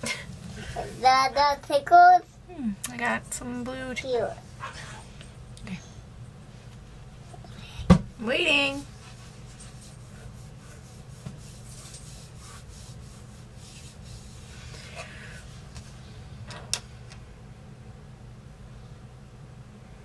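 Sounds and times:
steady low hum: 0:00.0 - 0:20.0
makeup brush rubbing and scratching: 0:08.8 - 0:16.0.

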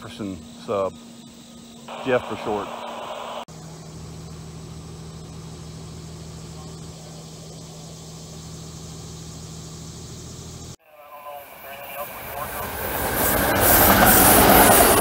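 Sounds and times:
engine humming steadily: 0:00.0 - 0:10.8.

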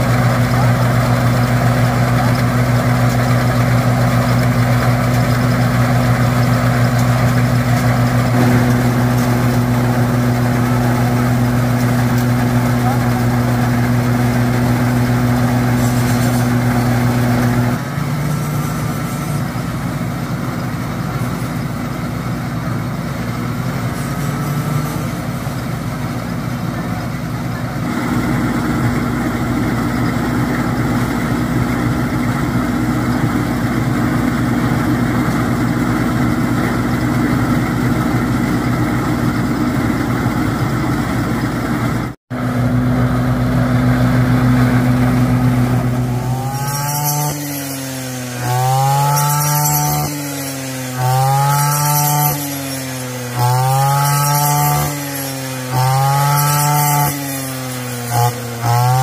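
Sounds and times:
rice thresher motor drone: 0:00.0 - 0:59.0.

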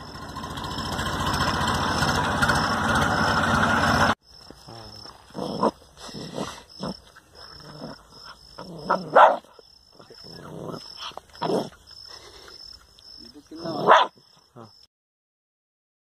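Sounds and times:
puppy barking and growling: 0:05.2 - 0:11.8, 0:13.5 - 0:14.2.

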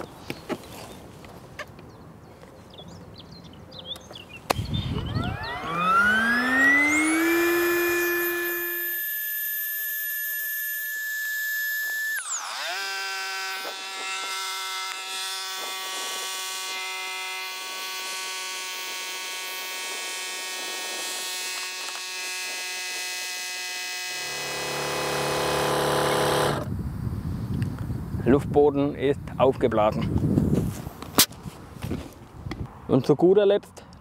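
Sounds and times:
electric air pump whining: 0:04.5 - 0:26.8.

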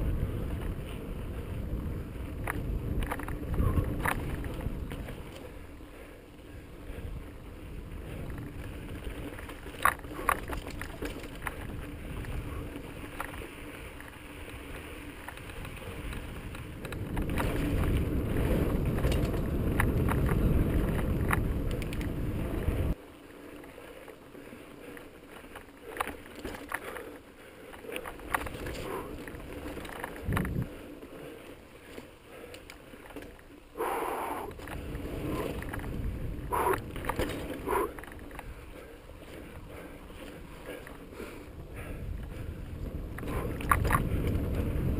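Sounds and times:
wind rumbling on microphone: 0:00.0 - 0:23.0, 0:27.8 - 0:44.9
bike clicks and rattles: 0:00.0 - 0:44.9
bike tyre noise: 0:00.0 - 0:44.9.

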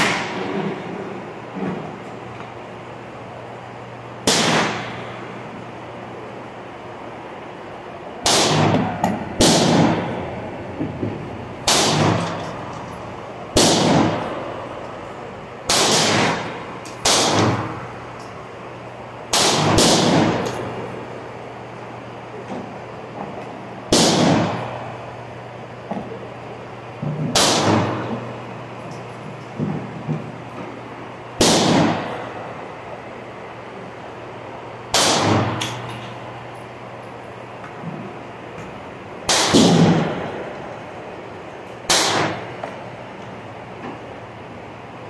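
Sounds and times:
gunshots with echo: 0:00.0 - 0:00.8, 0:04.2 - 0:05.1, 0:08.2 - 0:10.3, 0:11.6 - 0:12.7, 0:13.5 - 0:14.5, 0:15.7 - 0:17.9, 0:19.3 - 0:20.7, 0:23.9 - 0:24.8, 0:27.3 - 0:28.1, 0:31.4 - 0:32.3, 0:34.9 - 0:35.7, 0:39.3 - 0:40.5, 0:41.9 - 0:42.5.

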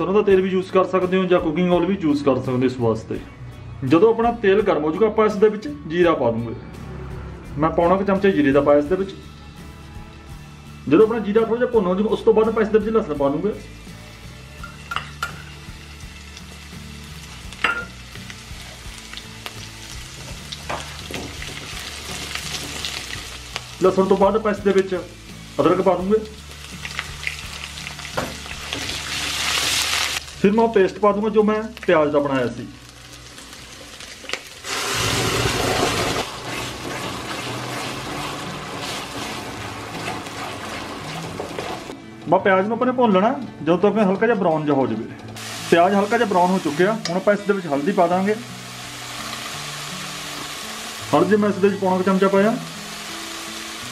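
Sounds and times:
spices sizzling in hot oil: 0:13.0 - 0:42.0, 0:45.4 - 0:53.9
metal spatula stirring pan: 0:36.3 - 0:39.4.

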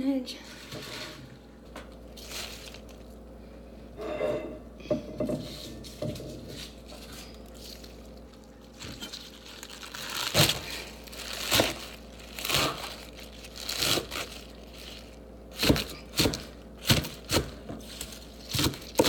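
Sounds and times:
leaves being torn and crushed: 0:01.9 - 0:03.2, 0:06.9 - 0:19.0.

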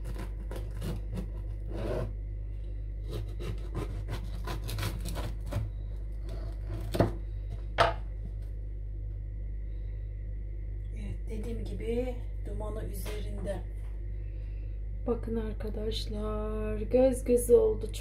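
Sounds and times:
knife sawing through bread: 0:00.0 - 0:02.1, 0:03.0 - 0:07.0.

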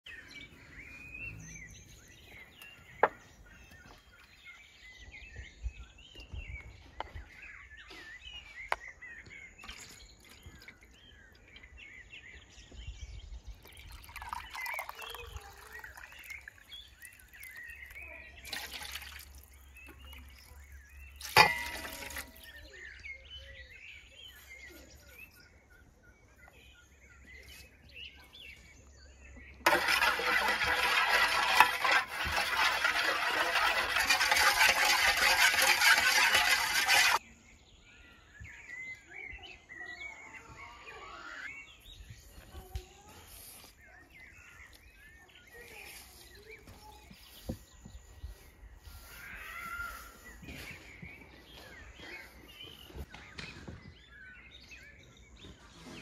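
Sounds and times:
birds chirping: 0:00.0 - 0:56.0
water trickling from jug: 0:13.6 - 0:20.5, 0:29.7 - 0:37.2.

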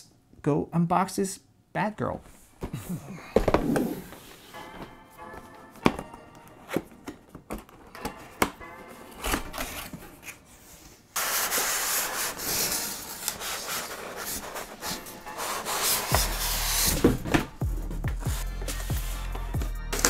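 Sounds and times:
cardboard rubbing and scraping: 0:11.2 - 0:17.5.

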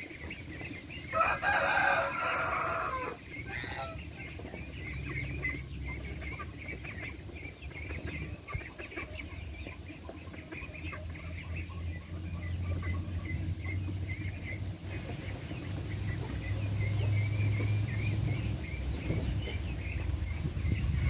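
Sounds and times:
birds calling: 0:00.0 - 0:21.0
wind rumble on microphone: 0:12.2 - 0:21.0.

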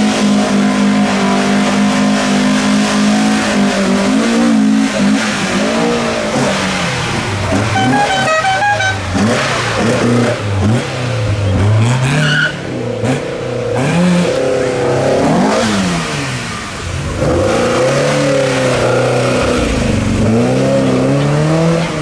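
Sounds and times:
car engine revving: 0:00.0 - 0:22.0.

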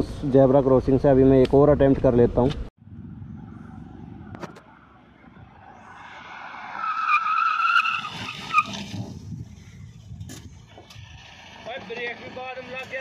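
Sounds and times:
tyres squealing under braking: 0:05.9 - 0:09.1.

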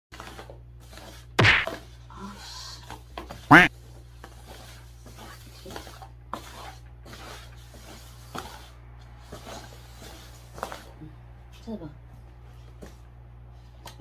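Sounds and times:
paper cups sliding on a tabletop: 0:00.2 - 0:11.0.

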